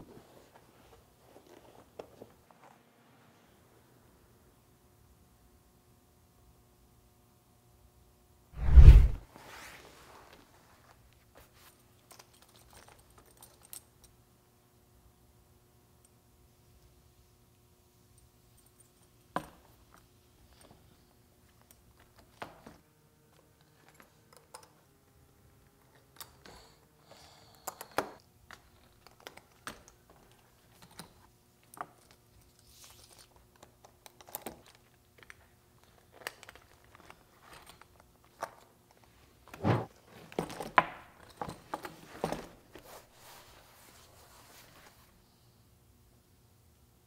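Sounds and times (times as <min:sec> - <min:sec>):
metal snap hooks jangling: 0:12.0 - 0:14.1.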